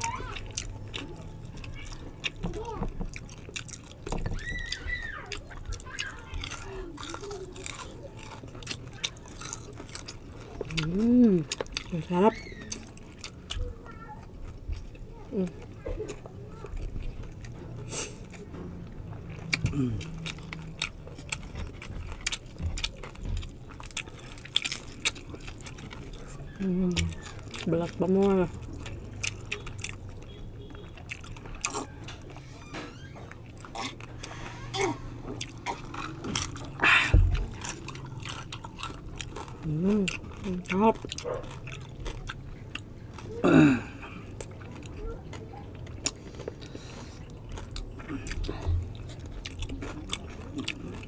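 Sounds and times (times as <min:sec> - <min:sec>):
crispy pork skin crunching: 0:00.0 - 0:51.0
people chewing with lip smacks: 0:00.0 - 0:51.0
person humming mmm: 0:19.6 - 0:20.6.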